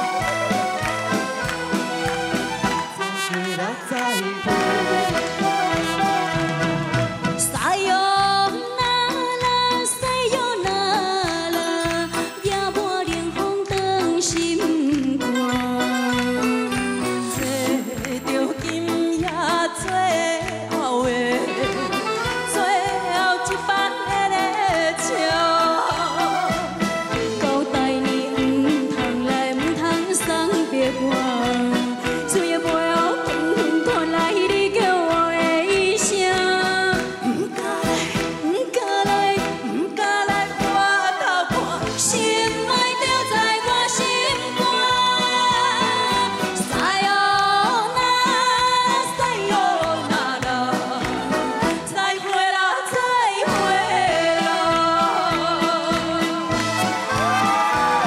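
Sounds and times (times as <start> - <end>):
band backing with steady beat: 0.0 - 58.0
woman singing with vibrato: 2.9 - 6.3, 7.4 - 58.0.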